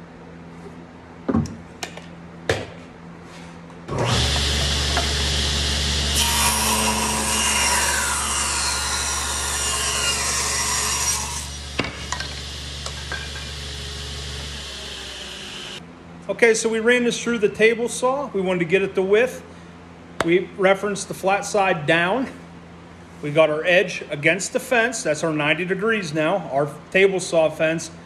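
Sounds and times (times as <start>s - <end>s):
saw ripping through wood: 3.9s - 11.8s
table saw motor humming: 3.9s - 15.8s.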